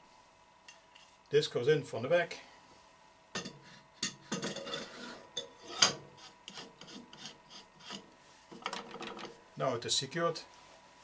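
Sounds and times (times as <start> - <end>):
wooden stick scraping metal bore: 3.4 - 9.3.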